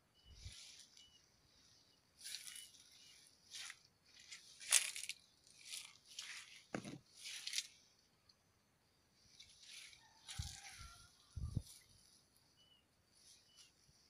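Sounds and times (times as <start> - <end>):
leaves rustling and crunching: 2.2 - 7.8.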